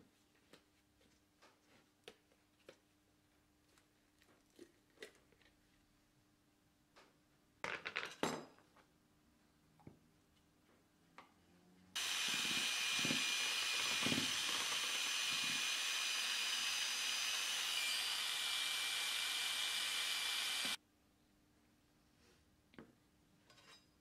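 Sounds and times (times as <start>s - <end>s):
power drill mixing paint: 12.0s - 20.8s.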